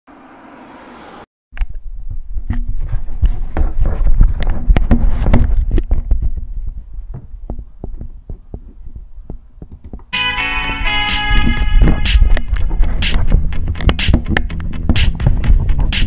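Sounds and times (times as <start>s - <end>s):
microphone handling knocks and clicks: 2.4s - 10.1s, 11.5s - 15.9s.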